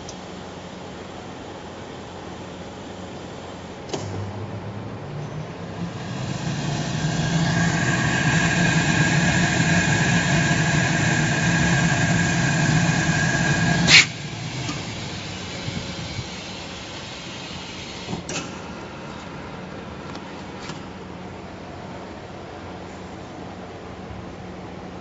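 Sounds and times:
welding machine hum and whine: 0.0s - 24.6s
short loud hiss: 5.9s - 18.2s.

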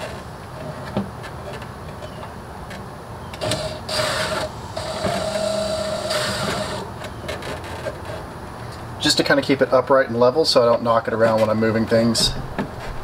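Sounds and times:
cordless drill motor whine: 3.4s - 6.9s.

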